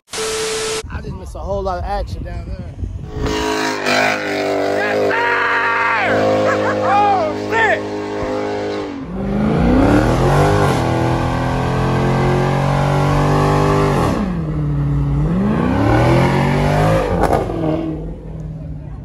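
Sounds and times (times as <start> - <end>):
car engine revving hard: 3.1 - 5.2, 5.8 - 18.2.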